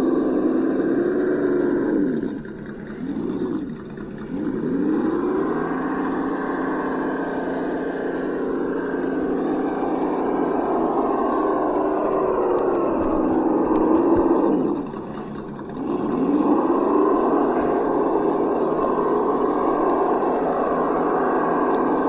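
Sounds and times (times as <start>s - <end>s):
rc truck motor running: 0.0s - 22.0s.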